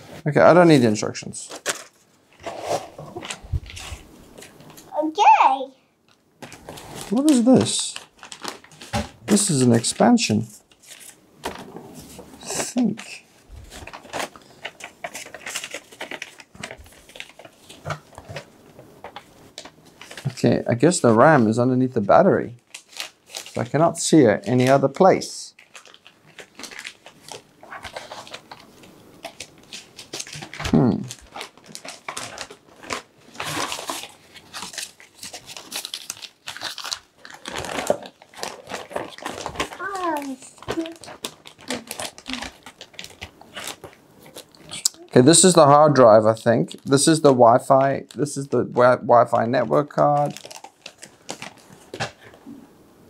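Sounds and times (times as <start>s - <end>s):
plastic bag crinkling: 6.1s - 20.4s, 22.6s - 52.4s.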